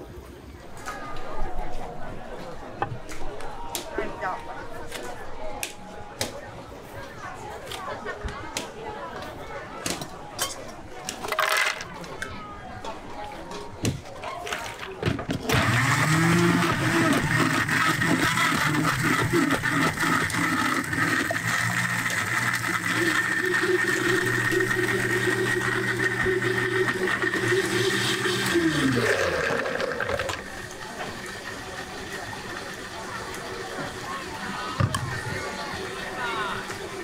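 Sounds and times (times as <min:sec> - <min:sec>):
electric blender running: 0:15.5 - 0:37.0.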